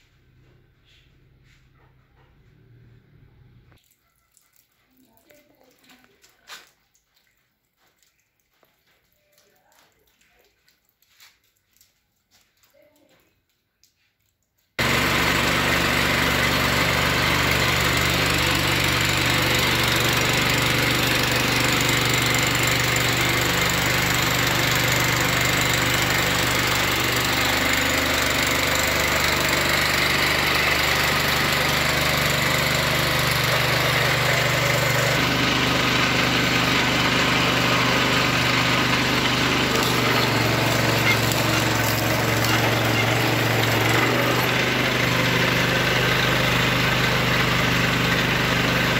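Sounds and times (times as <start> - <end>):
small petrol engine running: 14.8 - 48.9.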